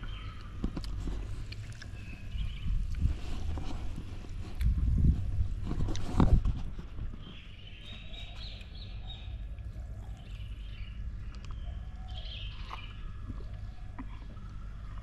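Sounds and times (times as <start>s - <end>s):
birds chirping: 0.0s - 0.6s, 1.8s - 3.1s, 6.9s - 15.0s
wind rumble on microphone: 0.0s - 9.0s.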